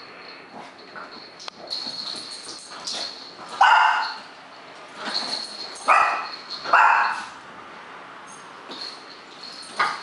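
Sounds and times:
small bell jingling: 0.0 - 7.4, 8.3 - 10.0
dog barking: 3.6 - 4.2, 5.9 - 7.3.

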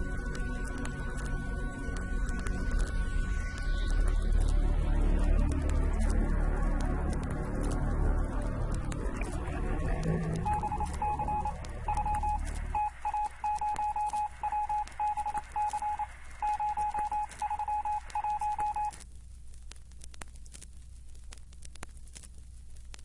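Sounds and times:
crackle of clicks: 0.0 - 23.0
low rumble: 4.6 - 12.8
electronic beep tone pulses: 9.9 - 18.9.

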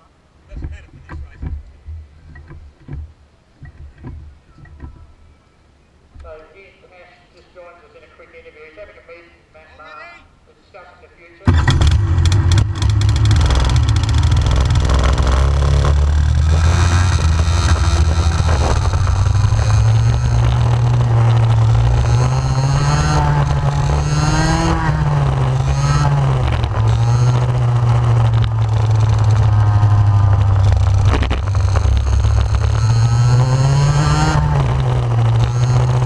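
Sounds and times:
kart engine revving: 11.5 - 36.0.

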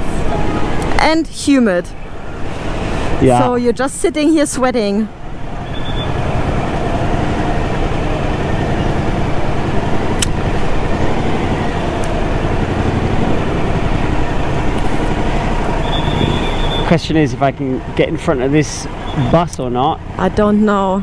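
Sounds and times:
dense city traffic: 0.0 - 21.0
motorcycle engine: 5.1 - 21.0
sharp click: 10.2 - 10.4.

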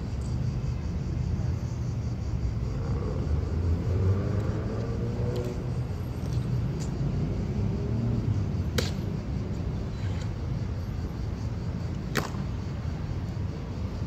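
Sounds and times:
city road traffic rumble: 0.0 - 14.0
passing engine hum: 2.6 - 10.5.

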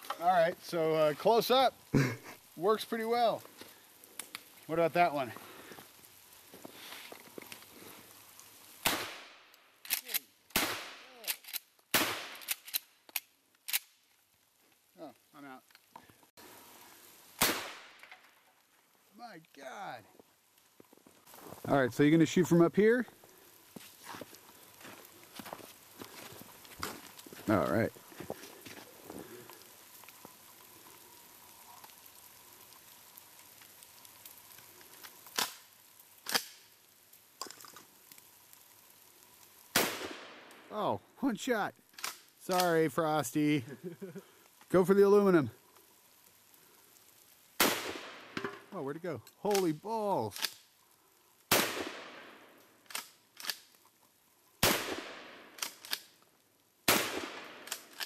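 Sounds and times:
gunshots: 8.8 - 9.4, 10.5 - 11.3, 11.9 - 12.6, 17.4 - 18.0, 39.7 - 40.4, 47.6 - 48.5, 51.5 - 52.4, 54.6 - 55.5, 56.9 - 57.7.

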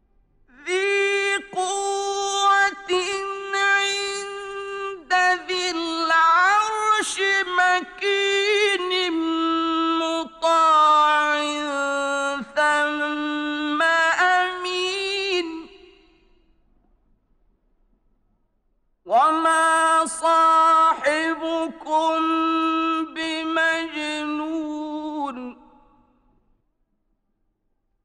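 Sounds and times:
man chanting melodically: 0.6 - 16.0, 19.1 - 25.8.

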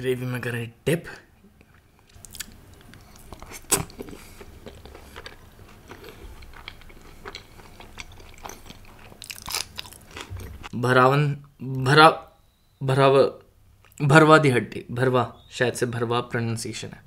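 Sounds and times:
man chewing food: 1.6 - 10.7.

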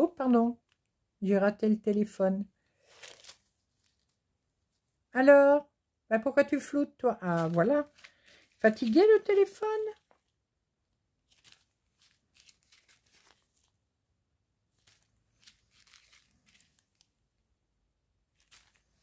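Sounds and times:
plastic bags crinkling: 2.8 - 4.2, 7.2 - 10.3, 11.2 - 13.8, 14.7 - 17.2, 18.3 - 19.0.

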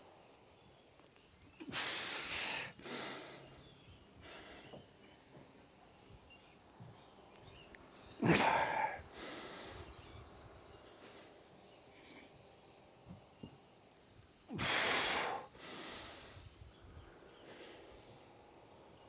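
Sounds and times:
man breathing heavily: 1.7 - 5.0, 8.2 - 10.2, 14.5 - 18.2.

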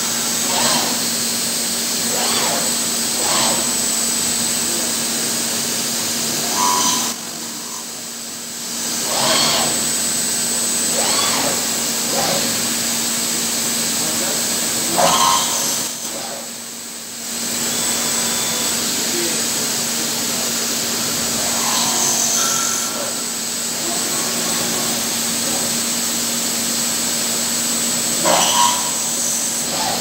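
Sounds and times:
spindle head whines: 0.0 - 1.3, 1.9 - 5.6, 6.3 - 8.0, 8.9 - 10.2, 10.8 - 12.6, 17.5 - 19.2, 21.3 - 25.8, 28.1 - 30.0
machine whine and hum: 0.0 - 30.0.

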